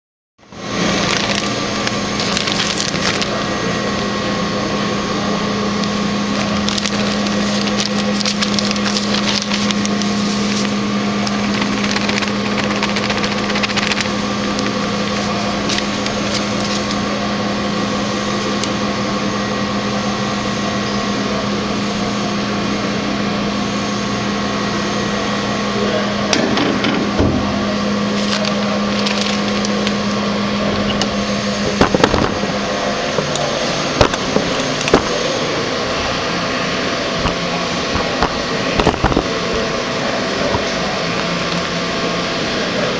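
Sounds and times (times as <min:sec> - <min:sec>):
grinder humming: 0:00.4 - 0:19.8, 0:25.8 - 0:42.9
ticks and crackles of ground material: 0:01.0 - 0:03.3, 0:06.4 - 0:14.8.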